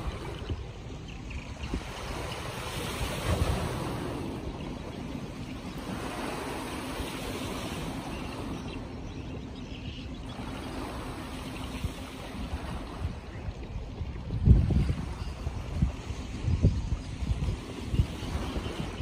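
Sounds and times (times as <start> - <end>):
river water washing: 0.0 - 1.0, 1.6 - 13.5
wind buffeting microphone: 0.0 - 19.0.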